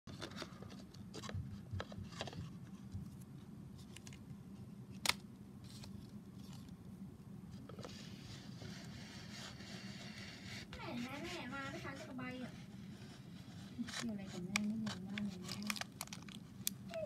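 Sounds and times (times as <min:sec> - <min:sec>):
paper crinkling: 0:07.6 - 0:17.0.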